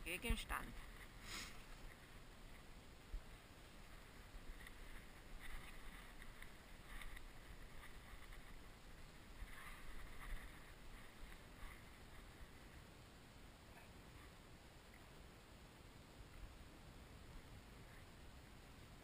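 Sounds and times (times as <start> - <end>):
footsteps crunching through stubble: 3.8 - 12.7.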